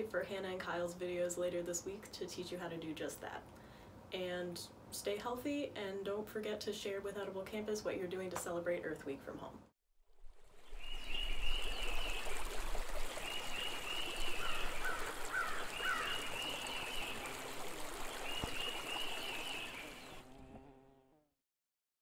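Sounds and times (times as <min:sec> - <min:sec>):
running stream: 0:10.1 - 0:20.5
songbird warbling: 0:10.6 - 0:12.5, 0:13.1 - 0:20.2.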